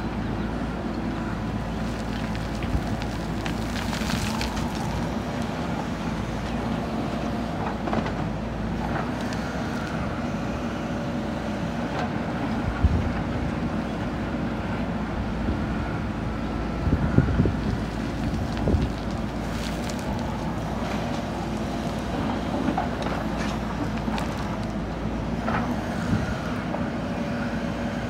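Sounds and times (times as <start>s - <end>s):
diesel engine under load: 0.0s - 28.0s.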